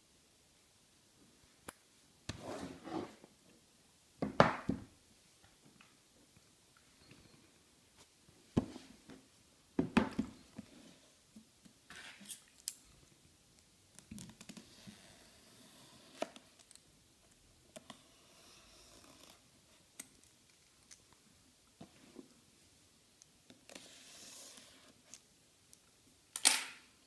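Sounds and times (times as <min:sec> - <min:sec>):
cardboard rustling and scraping: 0:02.4 - 0:03.2.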